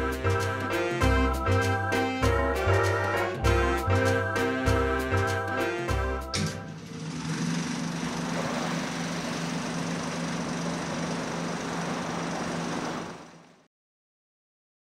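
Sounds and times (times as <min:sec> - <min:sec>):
music chord: 0:00.0 - 0:06.8.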